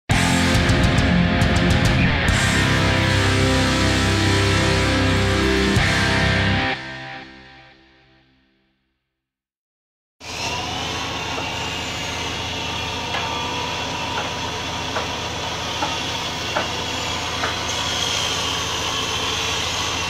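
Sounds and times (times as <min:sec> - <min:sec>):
throbbing motor hum: 0:00.1 - 0:06.7
high machine whine: 0:00.1 - 0:07.4.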